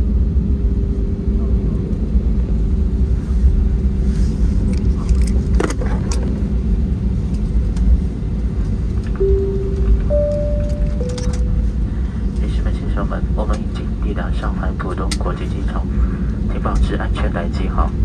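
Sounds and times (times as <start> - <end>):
airliner cabin rumble while taxiing: 0.0 - 18.0
steady hum changing pitch: 9.2 - 12.3.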